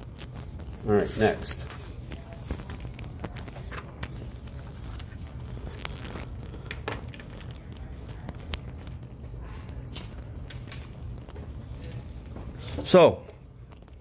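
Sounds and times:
low steady hum: 0:00.0 - 0:14.0
small objects clicking on desk: 0:05.7 - 0:07.7.

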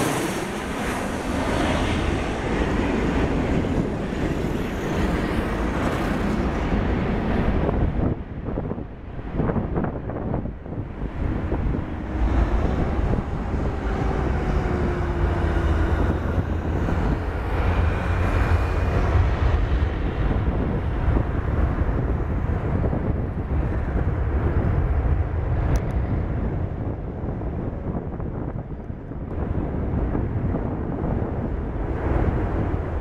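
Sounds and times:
jet engines rumbling: 0:00.0 - 0:33.0
descending engine whine: 0:10.6 - 0:27.0.

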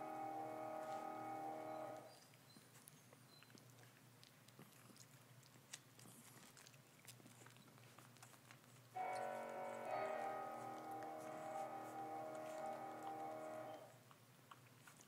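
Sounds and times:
puppies rustling on towels: 0:00.7 - 0:03.0, 0:07.7 - 0:13.9
background music: 0:09.0 - 0:13.9.

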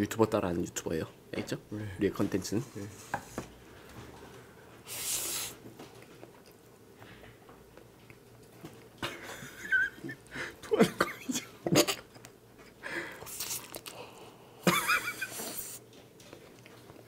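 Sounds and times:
person chewing: 0:04.9 - 0:06.7, 0:07.6 - 0:09.0, 0:12.2 - 0:14.3, 0:15.2 - 0:17.0
breathing sounds: 0:10.3 - 0:10.6, 0:12.8 - 0:14.6
noodles slurped: 0:13.2 - 0:14.0.

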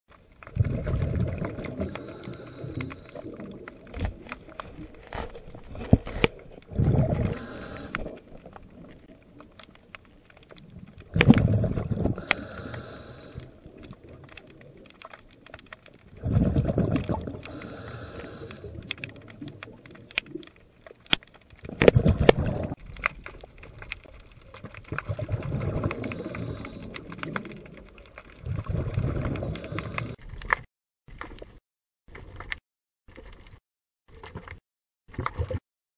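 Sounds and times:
underwater bubbles rumbling: 0:00.4 - 0:09.5, 0:10.6 - 0:14.9, 0:16.1 - 0:20.5, 0:21.6 - 0:23.8, 0:24.6 - 0:30.2.

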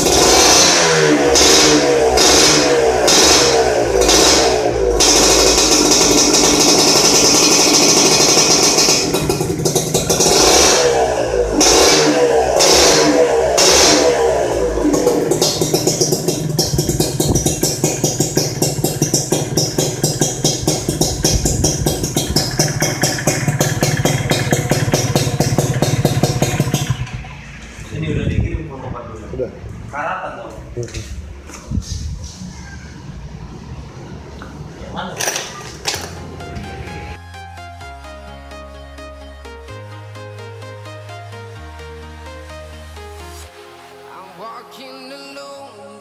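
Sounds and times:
motorcycle engine revving: 0:00.0 - 0:28.6.

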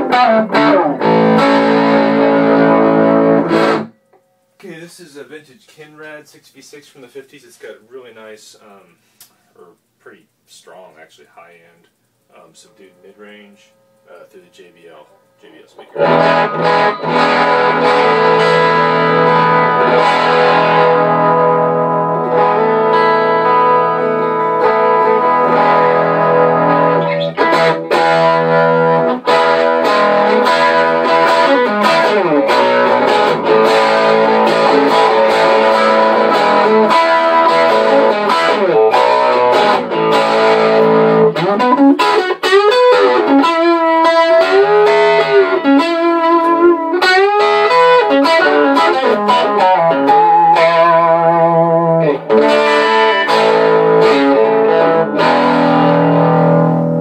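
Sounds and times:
electric guitar through tube amp: 0:00.0 - 0:04.0, 0:12.3 - 0:57.0.

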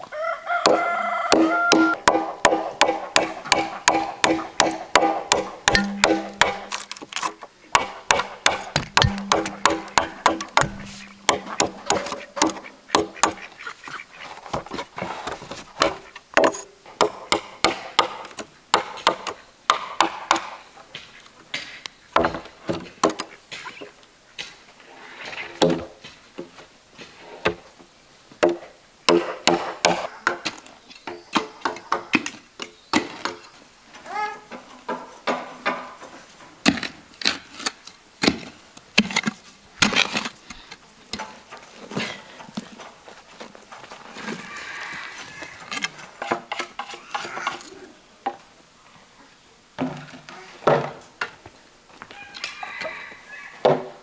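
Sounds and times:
machete chopping bamboo: 0:00.7 - 0:13.4, 0:15.8 - 0:20.5, 0:28.4 - 0:30.6.

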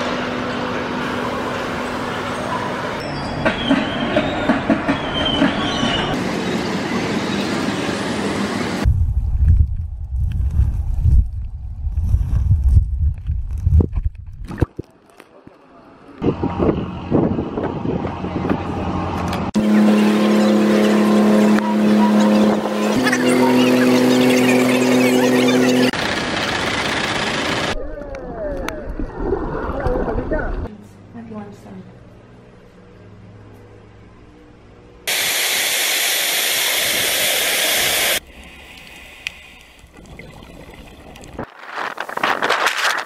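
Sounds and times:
wind noise on microphone: 0:08.8 - 0:14.8, 0:16.2 - 0:18.9, 0:41.4 - 0:43.0
boat engine humming: 0:18.0 - 0:27.8.

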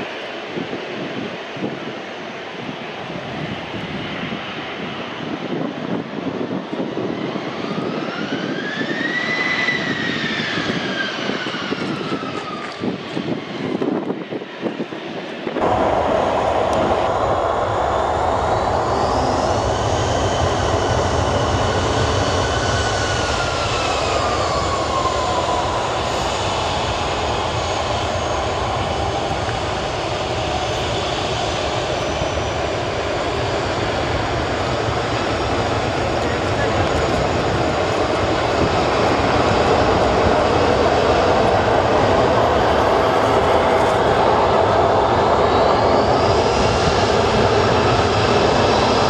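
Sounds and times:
jet engines roaring: 0:00.0 - 0:49.0.

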